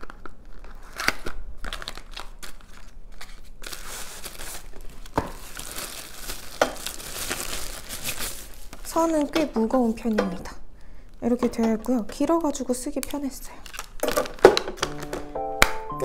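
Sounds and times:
packaging rustling and crinkling: 0.0s - 9.4s, 12.3s - 15.1s.

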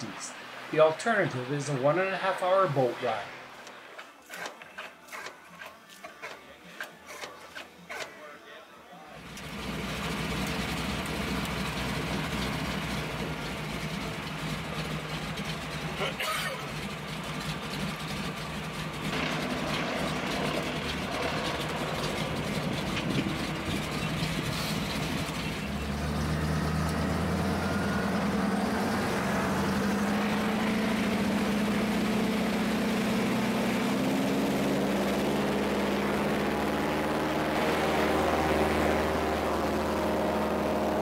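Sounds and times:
seaplane radial engine running: 9.2s - 41.0s.

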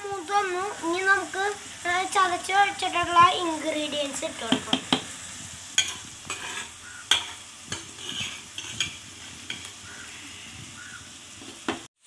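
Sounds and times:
onions sizzling in oil: 0.0s - 12.0s
steel spoon clinking on pots: 5.8s - 9.7s.

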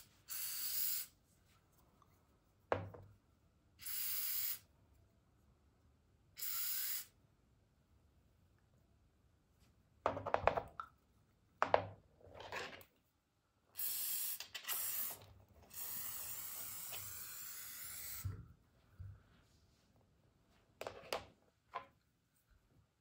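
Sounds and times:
aerosol can spraying: 0.0s - 1.1s, 3.8s - 4.6s, 6.4s - 7.1s, 13.8s - 18.3s.

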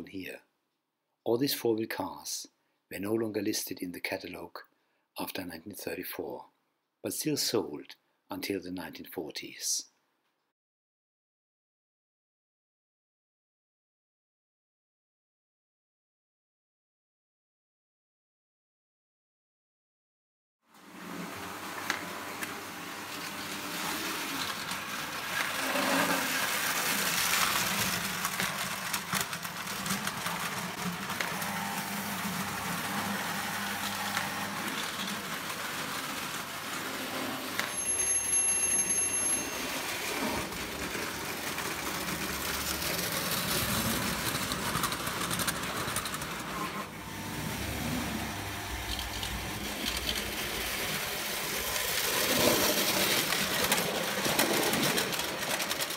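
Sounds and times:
toy train motors humming: 21.4s - 55.9s
brief high tone: 37.6s - 39.9s.

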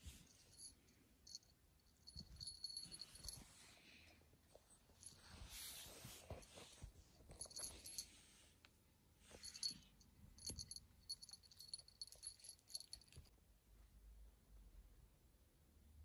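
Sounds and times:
small bell jingling: 0.3s - 3.6s, 7.3s - 8.2s, 9.3s - 13.3s.

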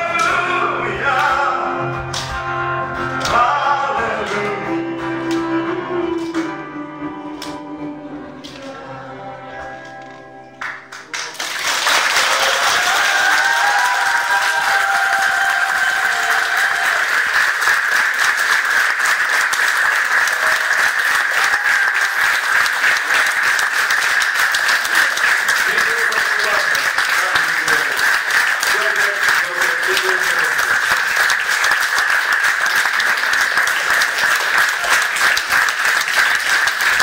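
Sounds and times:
audience applauding: 10.5s - 37.0s.

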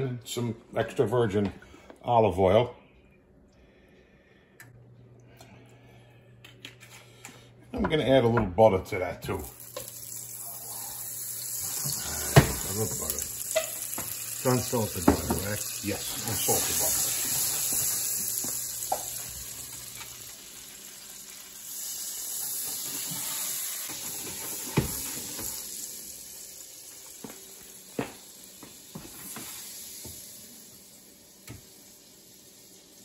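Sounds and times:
oil and butter sizzling in pan: 9.4s - 33.0s.

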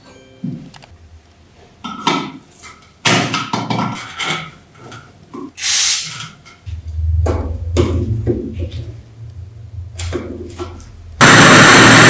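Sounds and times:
aerosol spray hiss: 5.6s - 6.1s
low hum: 6.6s - 12.0s.

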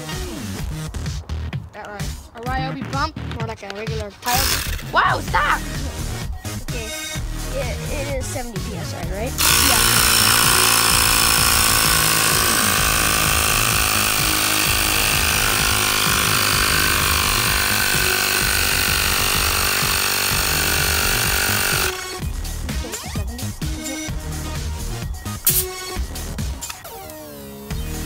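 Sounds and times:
tire inflator compressor running: 4.3s - 4.9s, 9.4s - 22.9s.

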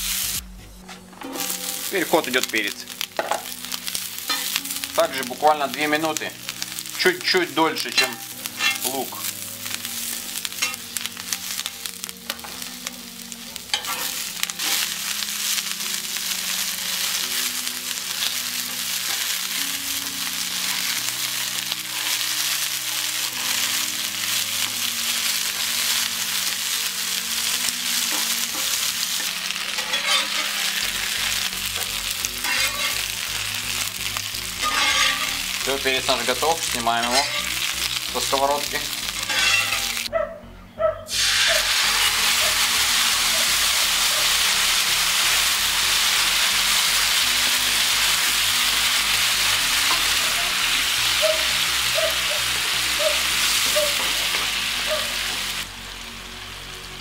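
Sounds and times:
peppers sizzling in oil: 0.0s - 0.4s, 1.0s - 40.1s, 41.1s - 57.0s
metal spatula scraping pan: 0.9s - 2.4s, 4.3s - 4.6s, 7.9s - 9.3s, 13.7s - 14.9s, 28.1s - 31.0s, 31.8s - 33.1s, 34.6s - 37.7s, 39.1s - 40.1s.

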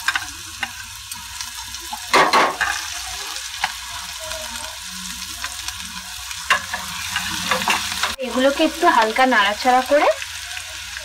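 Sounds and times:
onion sizzling in butter: 0.0s - 11.0s
spoon clinking and scraping pan: 1.9s - 3.9s, 6.4s - 8.2s.

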